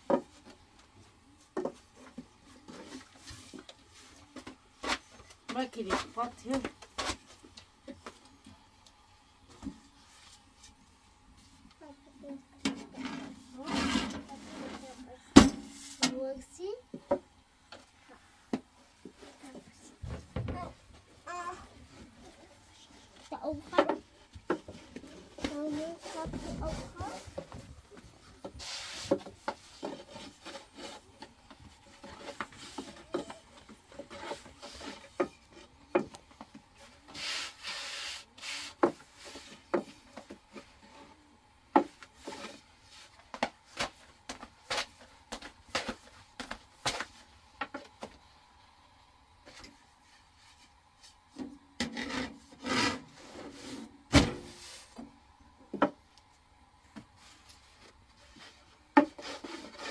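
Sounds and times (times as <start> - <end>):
rolling pin rubbing dough: 21.9 - 35.8, 51.8 - 53.9, 58.1 - 59.9.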